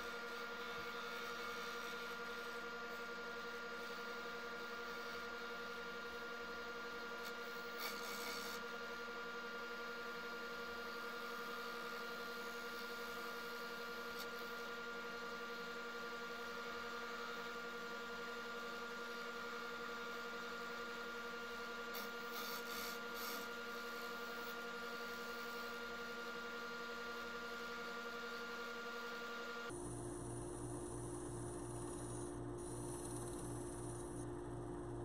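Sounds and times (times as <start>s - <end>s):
gouge scratching on spinning wood: 30.1s - 34.2s.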